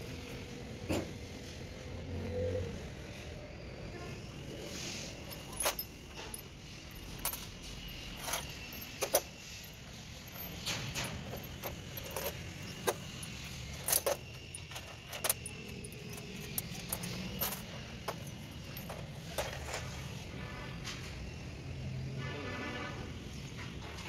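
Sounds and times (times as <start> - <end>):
metal parts clinking: 4.7 - 20.2.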